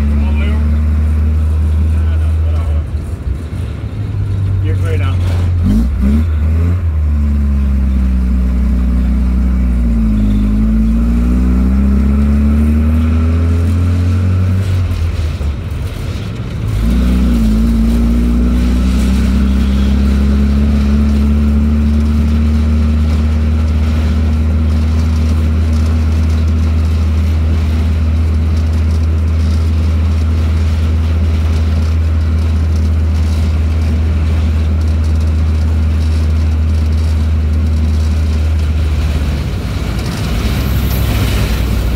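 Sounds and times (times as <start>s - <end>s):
vehicle engine droning: 0.0s - 41.9s.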